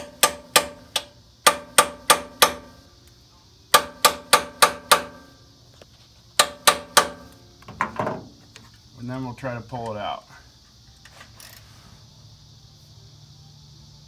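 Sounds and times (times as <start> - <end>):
hammer tapping metal: 0.0 - 2.7, 3.7 - 5.3, 6.4 - 7.3.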